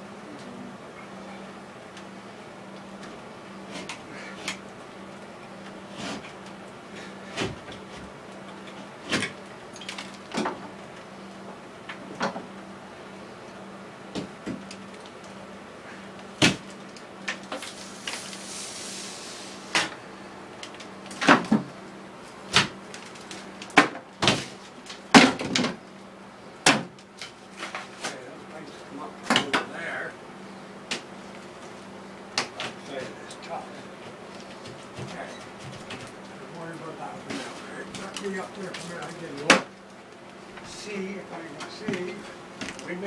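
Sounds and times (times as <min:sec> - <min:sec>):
brief rushing hiss: 0:17.7 - 0:19.6.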